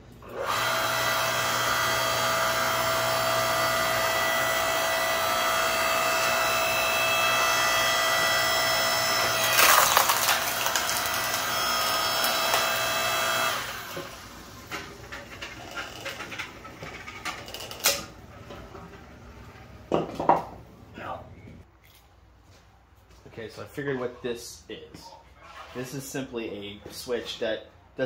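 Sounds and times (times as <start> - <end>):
log splitter motor humming: 0.2 - 19.9
log splitting with crackle: 9.4 - 11.5.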